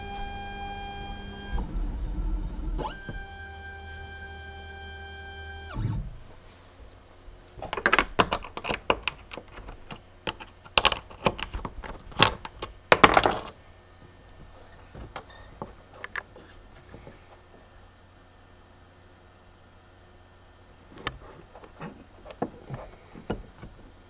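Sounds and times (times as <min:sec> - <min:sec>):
metal and wood clinking: 0:07.6 - 0:13.6.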